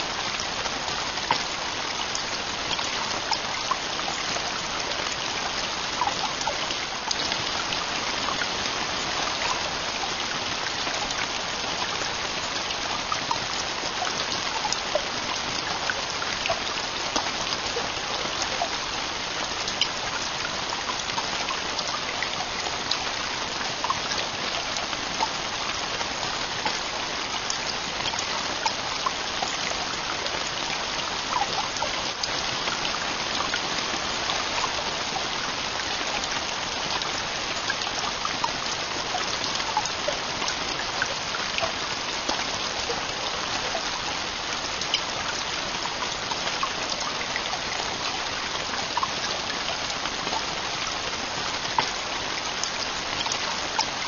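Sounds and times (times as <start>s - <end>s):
heavy rain falling: 0.0s - 54.0s.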